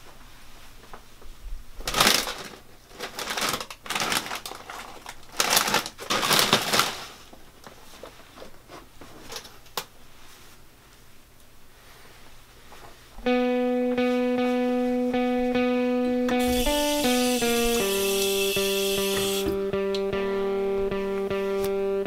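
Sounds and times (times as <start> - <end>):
snack packaging rustling: 1.8 - 8.1
items clattering: 1.8 - 9.7.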